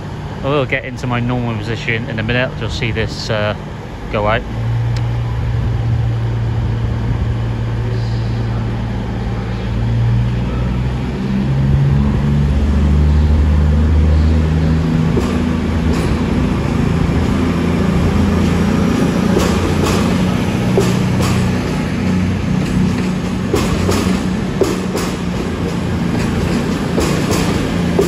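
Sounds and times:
diesel train engines accelerating: 0:00.0 - 0:28.0
sharp clicks of train cars: 0:14.9 - 0:28.0.

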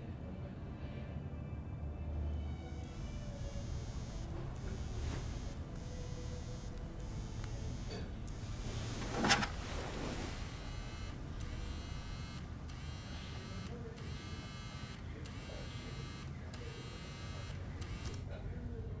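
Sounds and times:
smartphone vibrating buzz: 0:02.8 - 0:18.3.

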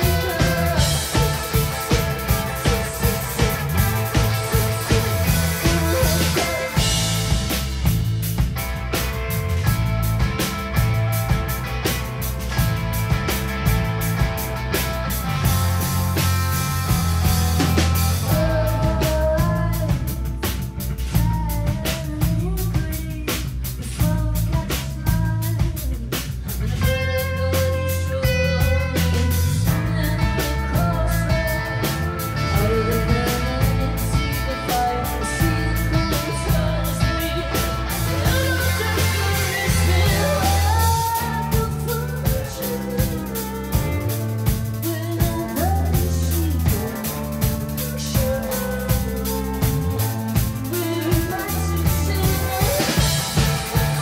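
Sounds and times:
woman singing: 0:00.0 - 0:07.4, 0:17.9 - 0:54.0
drum kit beat: 0:00.0 - 0:54.0
electric bass: 0:00.0 - 0:54.0.

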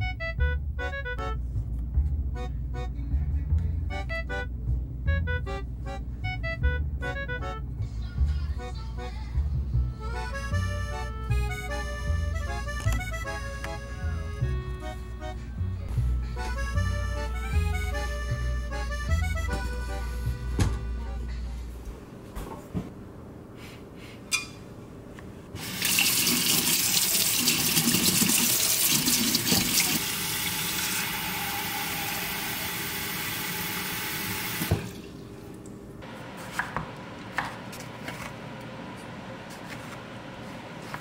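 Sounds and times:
knife tapping cutting board: 0:36.5 - 0:38.3.

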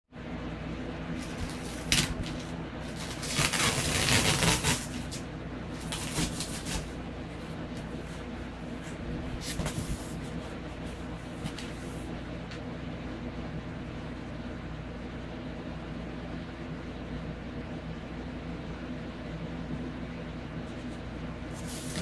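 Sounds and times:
steady low hum: 0:00.1 - 0:22.0
cardboard box rustling and scraping: 0:05.8 - 0:07.0, 0:08.0 - 0:12.1, 0:21.5 - 0:22.0.

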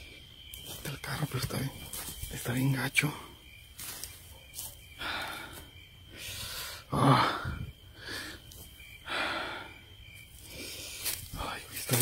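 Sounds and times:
man breathing hard: 0:05.0 - 0:11.7.

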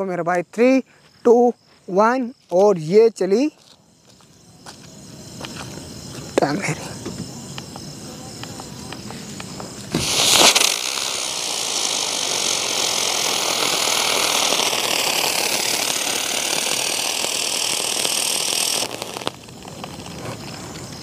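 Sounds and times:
firework flaring: 0:04.9 - 0:21.0
hiss of spraying sparks: 0:07.0 - 0:21.0.

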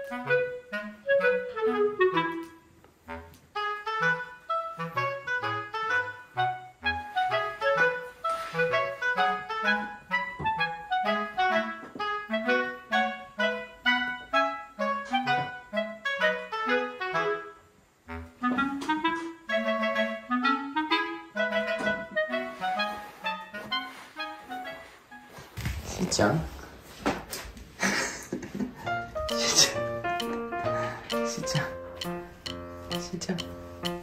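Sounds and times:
playful bouncy background music: 0:00.0 - 0:25.4, 0:28.8 - 0:34.0.

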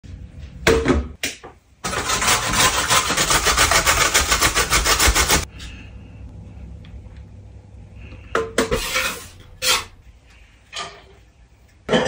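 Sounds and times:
carrot rasping on metal grater: 0:01.9 - 0:05.5, 0:08.8 - 0:10.0.

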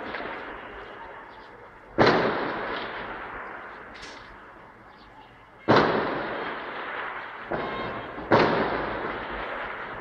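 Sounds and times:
sharp gunshot crack: 0:02.0 - 0:04.2, 0:05.7 - 0:10.0
gunshot with echoing tail: 0:05.7 - 0:10.0.

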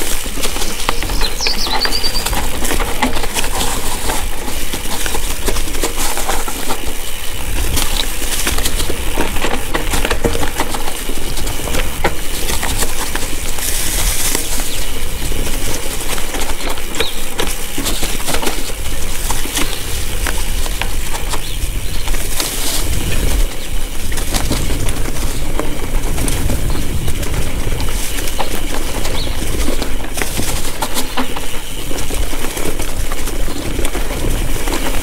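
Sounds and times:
bike rattling over stones: 0:00.0 - 0:35.0
wind on microphone: 0:07.3 - 0:16.0, 0:18.0 - 0:31.2.

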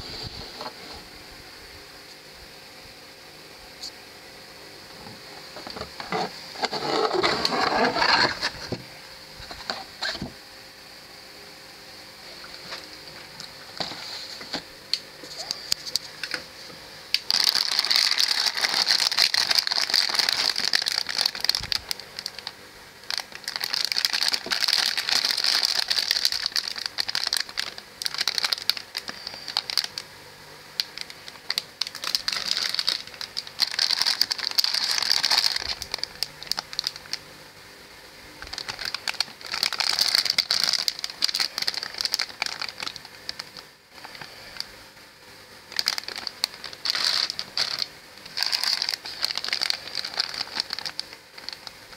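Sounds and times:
plastic bags crinkling: 0:05.5 - 0:08.8, 0:17.1 - 0:30.0, 0:30.8 - 0:37.2, 0:38.4 - 0:44.7, 0:45.7 - 0:51.9.

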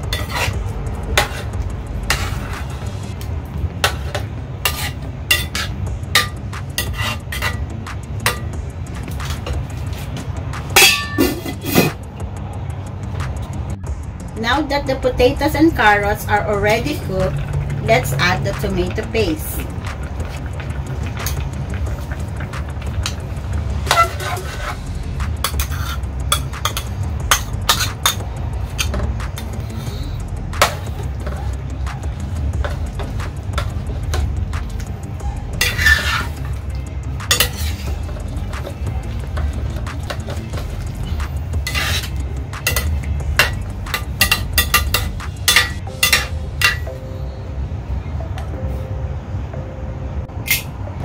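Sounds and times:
steady low hum: 0:00.0 - 0:51.0
metal ladle clinking on plate and pot: 0:03.9 - 0:08.6, 0:10.8 - 0:12.0, 0:25.4 - 0:29.0, 0:37.3 - 0:38.8, 0:39.4 - 0:47.0.

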